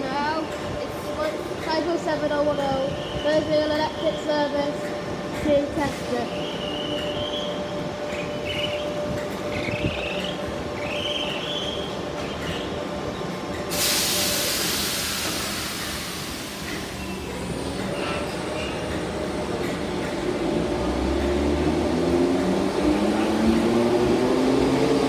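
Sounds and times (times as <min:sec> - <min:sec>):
train traction motor hum: 0:00.0 - 0:25.0
hiss of air: 0:13.7 - 0:17.0.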